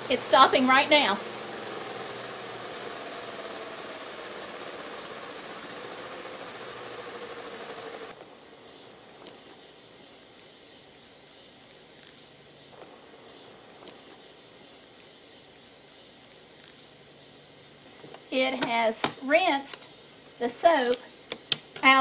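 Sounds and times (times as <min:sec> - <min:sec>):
spin-dryer motor humming: 0:00.0 - 0:10.6.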